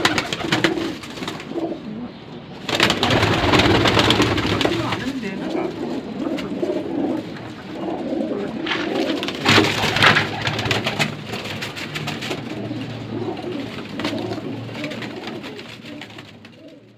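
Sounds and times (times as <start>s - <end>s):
pigeons cooing: 0.0s - 16.9s
rustling: 2.7s - 16.9s.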